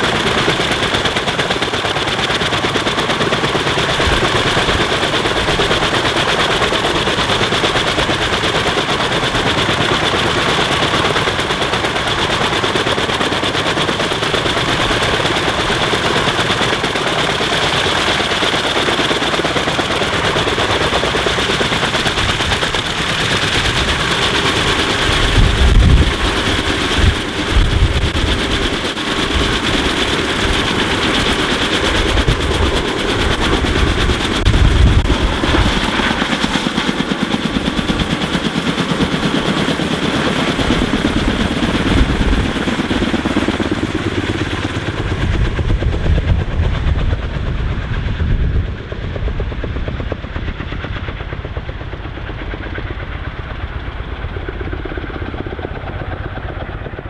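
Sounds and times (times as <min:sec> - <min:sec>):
helicopter rotors chopping: 0:00.0 - 0:57.0
turbine whine: 0:21.9 - 0:38.1.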